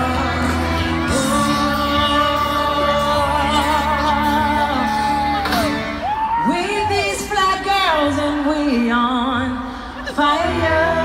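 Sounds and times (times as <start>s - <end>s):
person singing long notes: 0.0s - 5.9s
steady bass: 0.0s - 6.2s.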